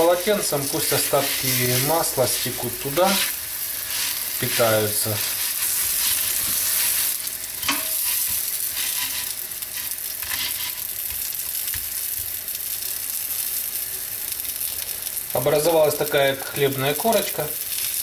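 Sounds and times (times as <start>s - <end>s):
cutlets sizzling in oil: 0.0s - 18.0s.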